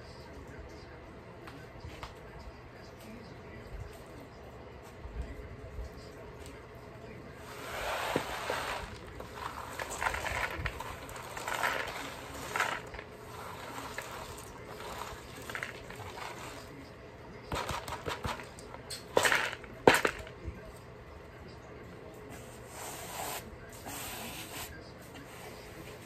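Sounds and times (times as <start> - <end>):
peanuts rattling in bamboo tray: 8.8 - 16.6.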